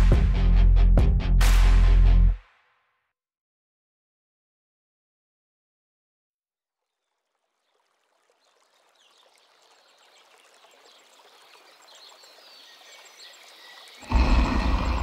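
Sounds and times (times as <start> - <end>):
flowing water: 6.8 - 15.0
faint bird chirps: 6.9 - 15.0.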